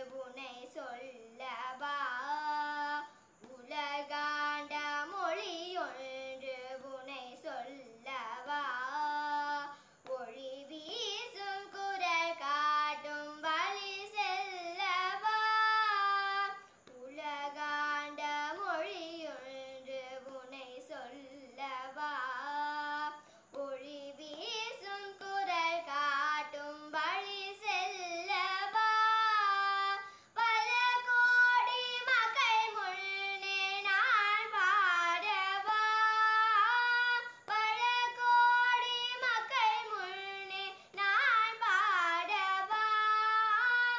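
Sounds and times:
girl singing unaccompanied: 0.0s - 43.9s.

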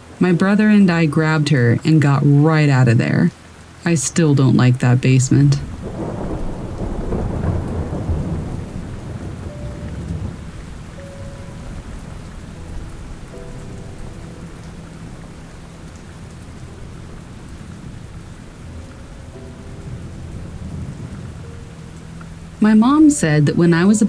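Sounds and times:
steady rain: 0.0s - 24.0s
thunder rolling: 4.9s - 24.0s.

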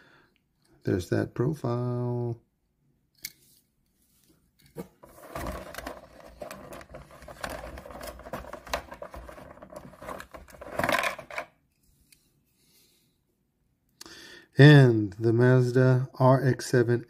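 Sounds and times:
plastic blister tray crackling: 5.0s - 11.4s.

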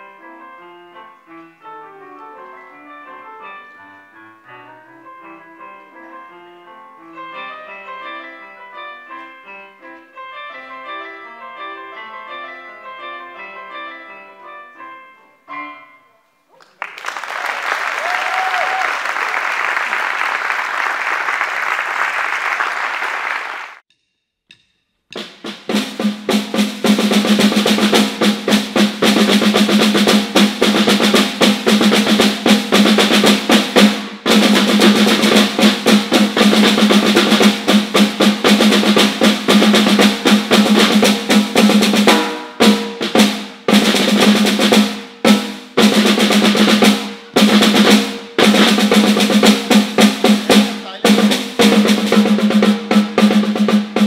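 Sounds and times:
audience applause: 16.6s - 23.8s
snare drums playing: 25.1s - 54.0s.

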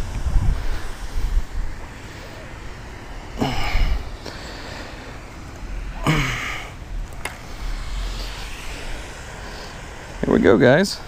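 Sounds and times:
low wind rumble: 0.0s - 11.0s
person sighing: 3.4s - 4.1s, 5.8s - 6.8s.

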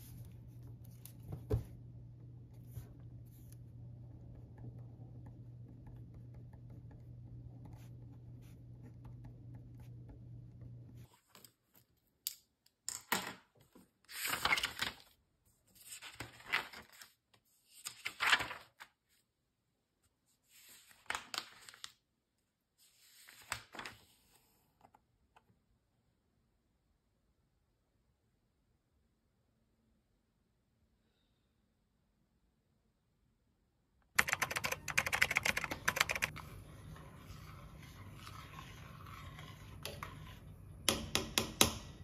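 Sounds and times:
notebook pages turning: 14.1s - 15.1s, 15.8s - 18.9s, 20.5s - 22.0s, 22.9s - 24.6s.

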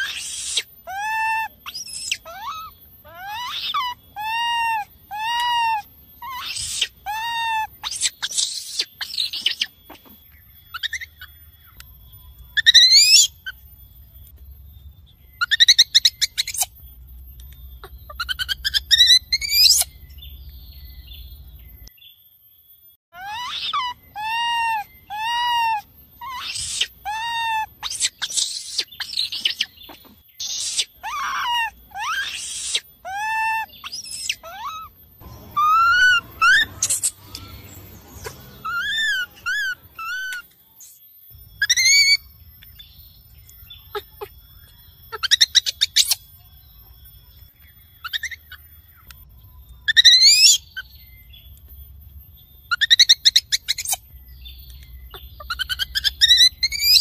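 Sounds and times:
baby monkey screaming: 0.0s - 13.6s, 15.4s - 16.8s, 17.8s - 20.1s, 23.2s - 40.5s, 41.6s - 42.8s, 43.8s - 44.4s, 45.1s - 46.3s, 48.0s - 49.1s, 49.8s - 51.0s, 52.7s - 54.1s, 55.0s - 57.0s.

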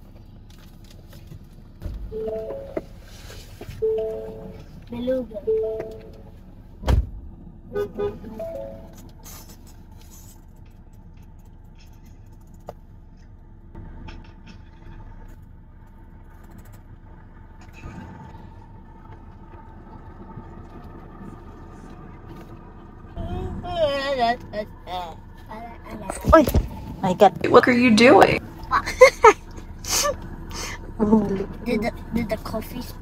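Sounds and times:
car engine idling: 0.0s - 33.0s
car door shutting: 6.8s - 7.2s.

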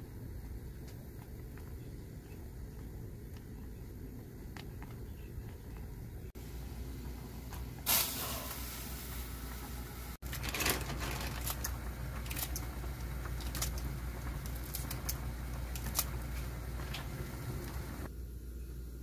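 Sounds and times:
gas stove low hum: 5.2s - 19.0s
soup boiling and bubbling: 6.4s - 18.2s.

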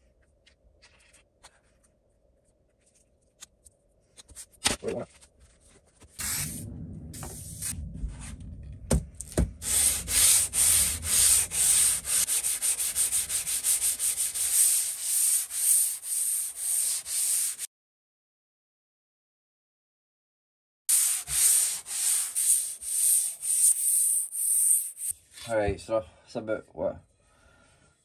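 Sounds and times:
sharp knocks: 8.6s - 9.6s
plane sole rubbing on sandpaper: 9.6s - 17.7s, 20.9s - 25.1s.

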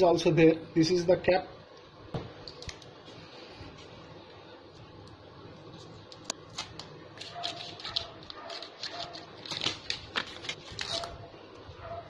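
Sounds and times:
scissors snipping paper: 6.2s - 11.2s
paper rustling and tearing: 6.4s - 11.2s.

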